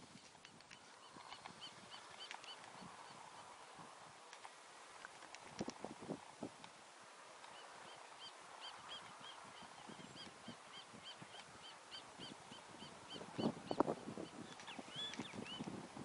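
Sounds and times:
bird chirping: 0:07.5 - 0:15.6.

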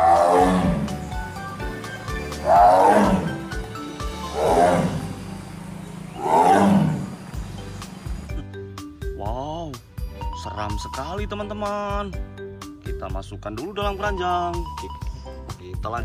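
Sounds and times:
tiger roaring: 0:00.0 - 0:01.2, 0:02.2 - 0:07.4
background music: 0:00.0 - 0:16.0.

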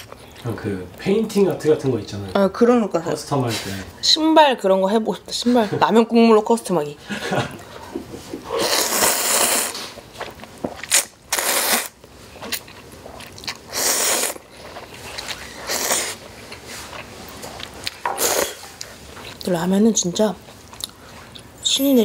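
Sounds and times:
noodles slurped: 0:08.5 - 0:10.1, 0:10.8 - 0:18.9
chewing: 0:08.8 - 0:19.5, 0:20.4 - 0:21.6.

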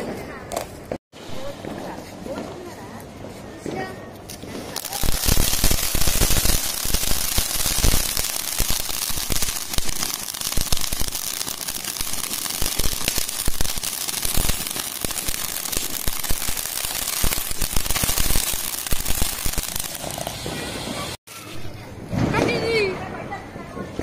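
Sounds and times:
firework fountain crackling hiss: 0:04.3 - 0:21.2.

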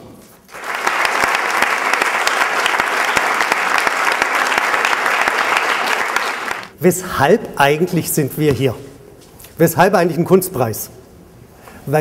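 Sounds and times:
large audience applauding: 0:00.5 - 0:06.7.

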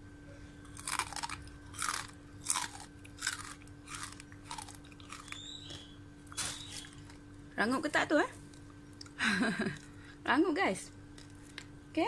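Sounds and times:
person crunching crisp fried fish: 0:00.6 - 0:07.3.

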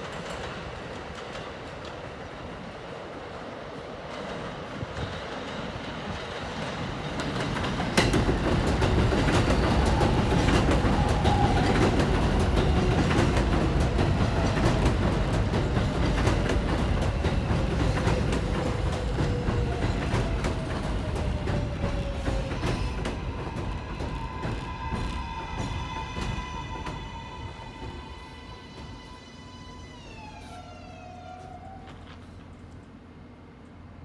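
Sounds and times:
subway train rumble: 0:00.0 - 0:34.0
wheels clacking over rail joints: 0:04.1 - 0:29.2
train motor whine: 0:09.5 - 0:32.9.

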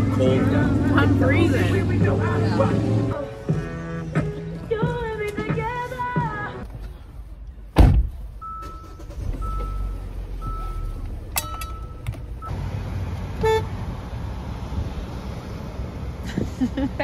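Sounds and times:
low engine rumble: 0:00.0 - 0:17.0
loud thump: 0:07.8 - 0:08.2
car warning chime: 0:08.4 - 0:12.6
car horn toot: 0:13.4 - 0:13.7.

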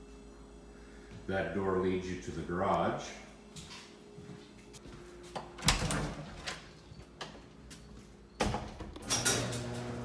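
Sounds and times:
door clattering: 0:05.6 - 0:06.8.

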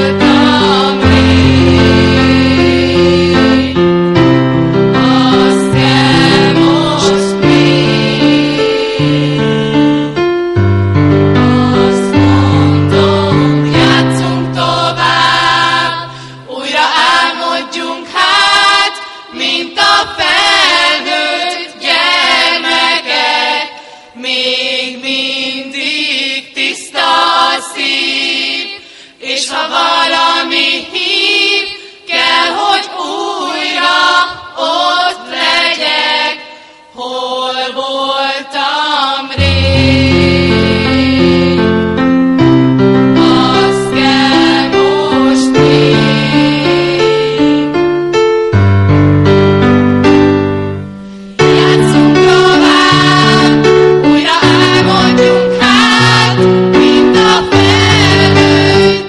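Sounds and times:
children's choir singing: 0:00.0 - 0:04.1, 0:04.8 - 0:10.2, 0:11.3 - 0:41.8, 0:43.1 - 0:47.7, 0:51.4 - 0:59.0
electric piano notes: 0:00.0 - 0:16.4, 0:39.4 - 0:59.0.

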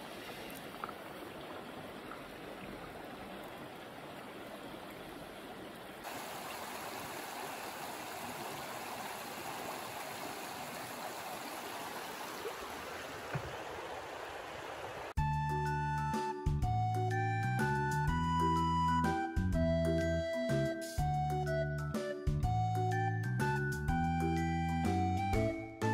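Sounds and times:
river rushing over stones: 0:00.0 - 0:15.2.

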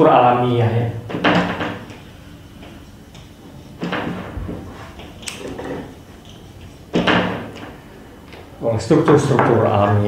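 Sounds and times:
marker squeaking on whiteboard: 0:01.7 - 0:07.7.

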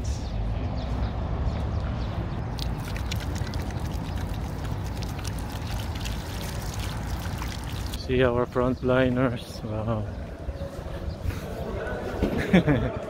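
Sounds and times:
hands washing under water: 0:02.6 - 0:08.0
tap water running into basin: 0:02.6 - 0:08.0.

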